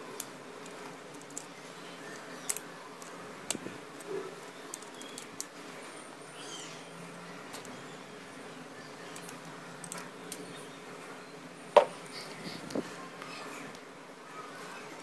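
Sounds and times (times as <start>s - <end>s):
small plastic and metal clicks: 0.2s - 1.5s, 2.4s - 5.5s.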